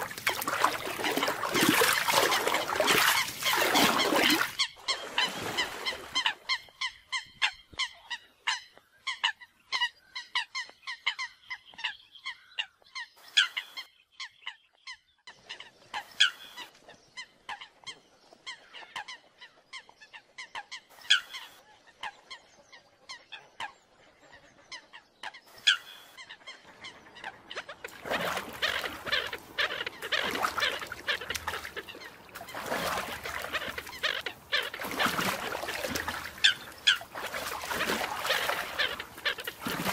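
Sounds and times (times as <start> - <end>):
birds honking calls: 0.0 - 9.2, 25.6 - 39.9.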